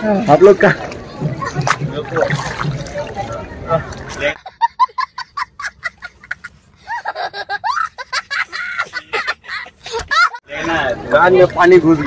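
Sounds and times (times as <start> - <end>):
young child laughing: 4.5 - 10.4.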